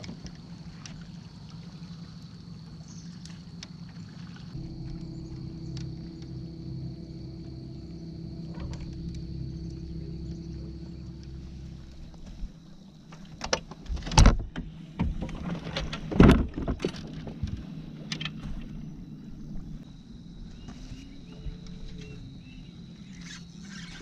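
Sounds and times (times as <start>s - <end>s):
low steady hum: 0.0s - 24.0s
knocks and thumps on boat deck: 13.1s - 18.7s.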